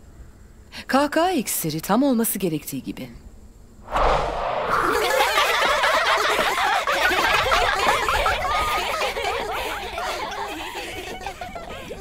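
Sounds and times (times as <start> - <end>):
girls laughing and giggling: 4.9 - 12.0.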